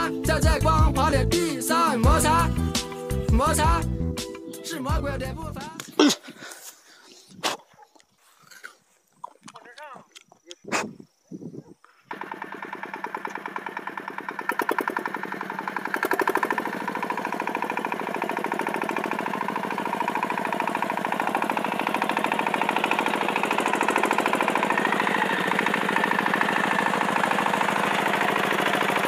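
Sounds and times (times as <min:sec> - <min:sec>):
cultivator engine chugging: 0:00.0 - 0:04.0, 0:12.1 - 0:29.0.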